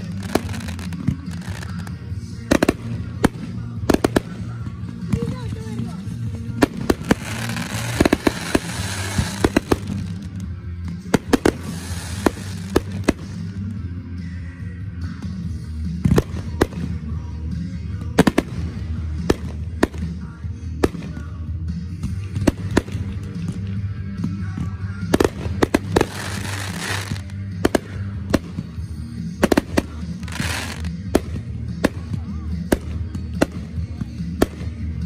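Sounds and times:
fireworks bangs: 0.0 - 1.9, 6.5 - 10.3, 11.1 - 13.4, 25.1 - 28.7, 29.4 - 33.6
fireworks crackling: 0.0 - 13.7, 25.1 - 33.8
music with bass line: 0.0 - 35.0.

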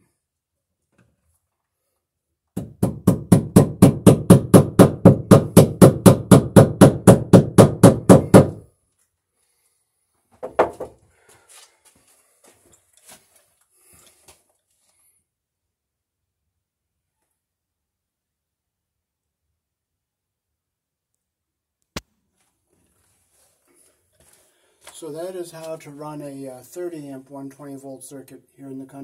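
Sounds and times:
hammer striking wood: 2.6 - 8.6, 10.4 - 11.0.

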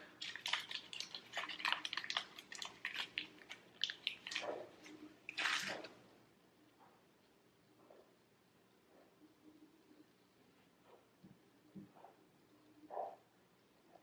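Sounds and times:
paper muffin liner crinkling: 0.0 - 6.0.

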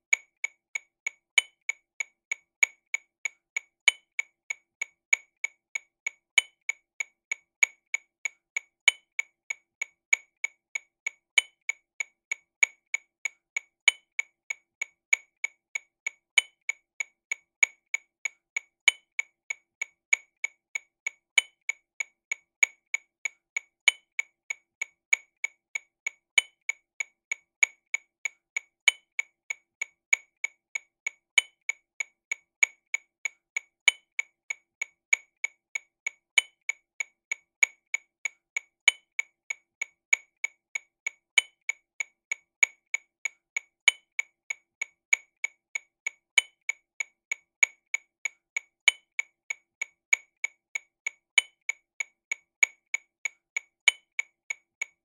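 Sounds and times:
accented metronome click: 0.0 - 55.0
metronome clicking: 53.8 - 54.0.

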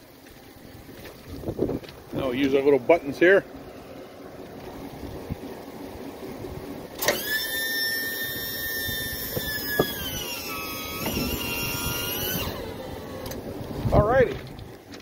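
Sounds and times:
hydraulic pump whining: 5.8 - 15.0.

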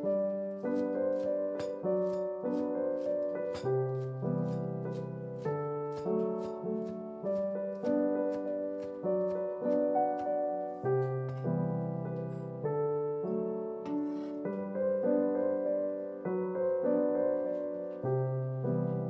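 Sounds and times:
slow solo piano music: 0.0 - 19.0.

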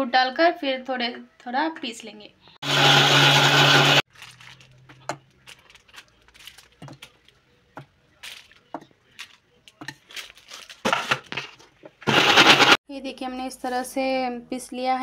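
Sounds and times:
mixer grinder running: 2.6 - 4.0, 12.0 - 12.8.

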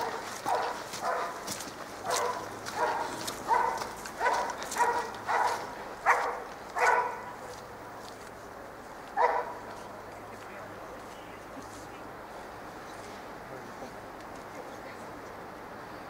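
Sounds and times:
dog barking: 0.0 - 7.4, 9.2 - 9.6.

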